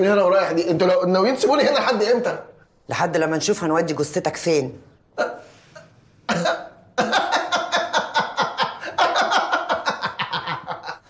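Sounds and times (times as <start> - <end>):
man laughing hard: 7.0 - 11.0.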